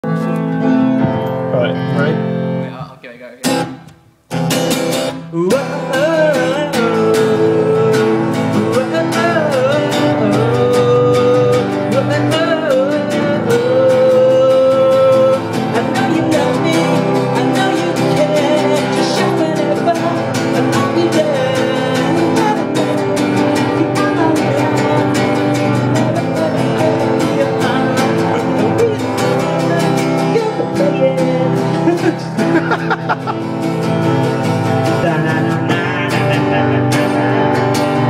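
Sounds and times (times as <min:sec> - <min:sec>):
electronic keyboard: 0:00.0 - 0:03.2
strummed acoustic guitar: 0:03.4 - 0:38.0
man singing: 0:05.1 - 0:38.0.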